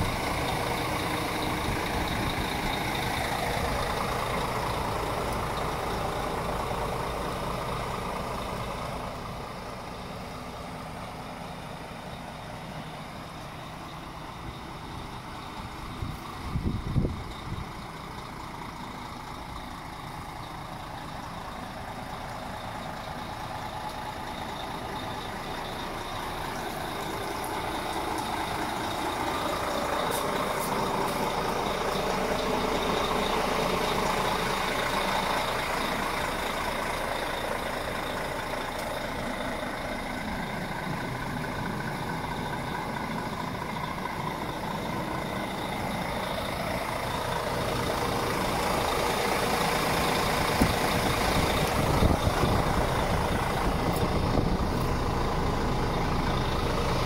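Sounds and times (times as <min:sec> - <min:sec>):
truck diesel engine idling: 0:00.0 - 0:57.0.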